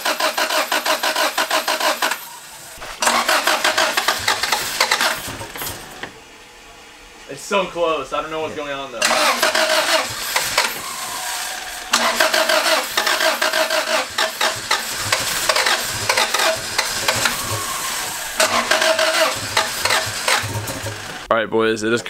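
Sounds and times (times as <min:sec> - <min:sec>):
engine cranking by starter: 0:00.0 - 0:06.2, 0:09.0 - 0:21.3.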